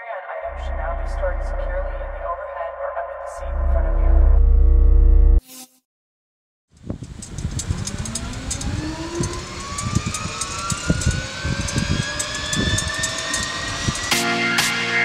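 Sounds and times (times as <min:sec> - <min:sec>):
jet engine spooling up: 0:06.8 - 0:14.9.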